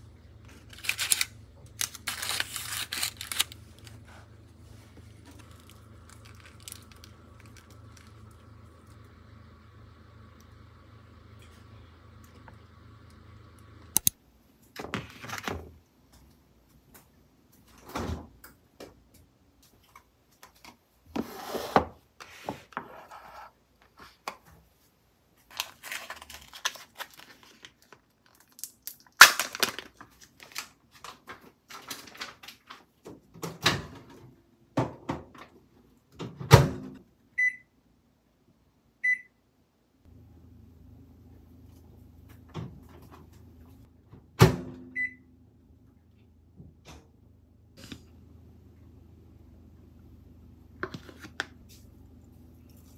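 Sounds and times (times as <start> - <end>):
appliance keypad beeps: 37.4 - 37.7, 39.0 - 39.3, 44.9 - 45.2.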